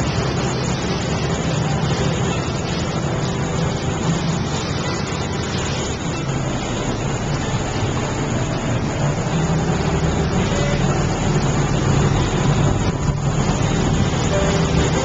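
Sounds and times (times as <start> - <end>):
motorboat engine humming: 0.0 - 15.0
rush of water noise: 0.0 - 15.0.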